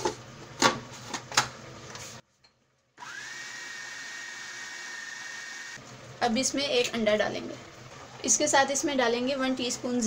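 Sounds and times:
food processor motor whining: 0:03.0 - 0:05.8.

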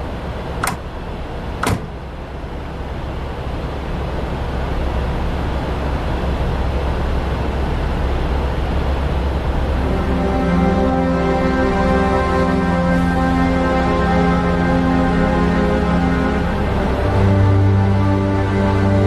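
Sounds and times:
low rumbling drone: 0:00.0 - 0:19.0
sharp clicks: 0:00.6 - 0:00.8.

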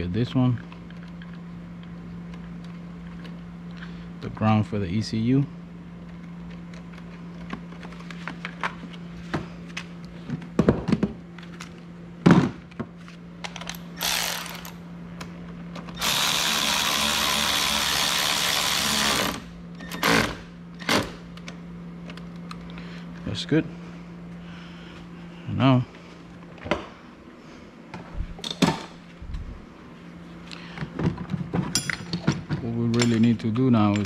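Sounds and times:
handheld power tool running: 0:13.7 - 0:14.8, 0:15.9 - 0:21.1.

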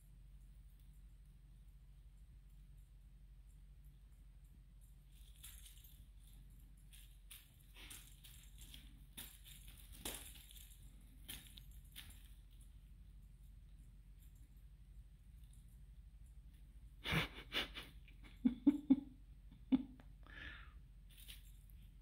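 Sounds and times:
feather toy rustling: 0:05.0 - 0:13.0, 0:21.0 - 0:22.0
kittens' paws scuffling on rug: 0:05.0 - 0:16.8, 0:21.0 - 0:22.0.

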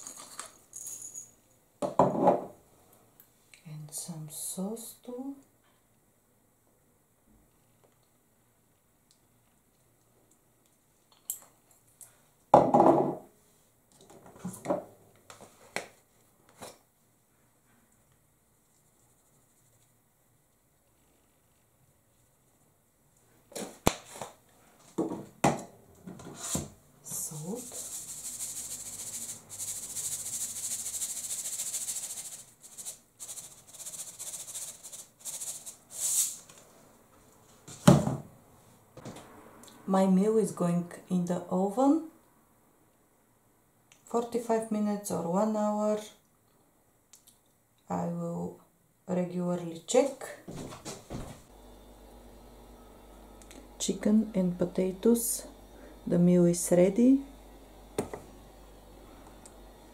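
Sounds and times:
seasoning rattling in plastic shaker: 0:27.4 - 0:36.3.

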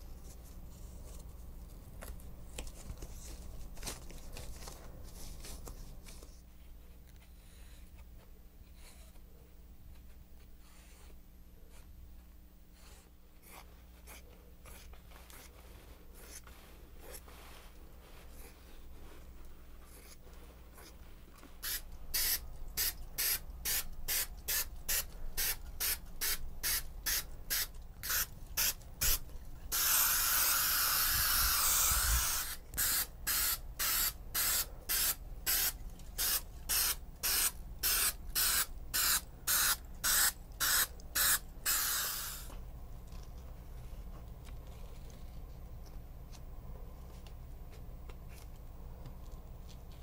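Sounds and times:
aerosol spray bursts: 0:21.6 - 0:42.5.

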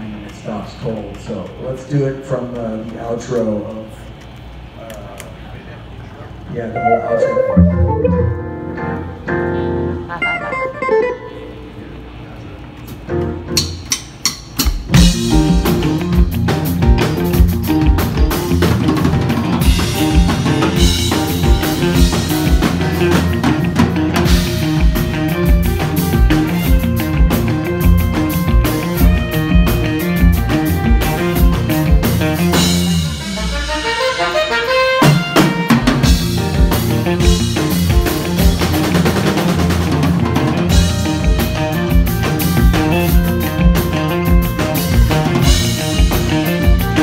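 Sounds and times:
electric guitars: 0:06.7 - 0:47.0
saxophone: 0:06.8 - 0:08.8, 0:19.5 - 0:38.6, 0:40.5 - 0:47.0
drum kit beat: 0:12.9 - 0:47.0.

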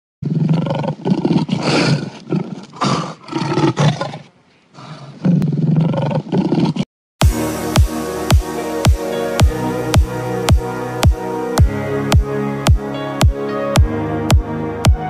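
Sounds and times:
big cat roaring and growling: 0:00.2 - 0:06.8.

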